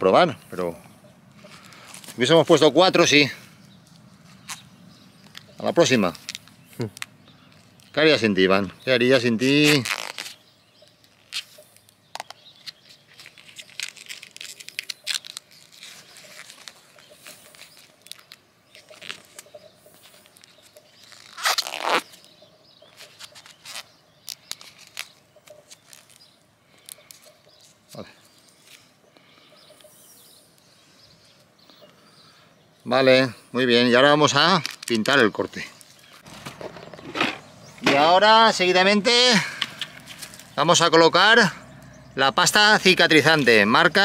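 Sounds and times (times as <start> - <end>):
grafting film crackling and rustling: 1.4 - 2.7, 3.6 - 8.3, 9.1 - 28.9, 34.3 - 38.2, 39.6 - 40.6.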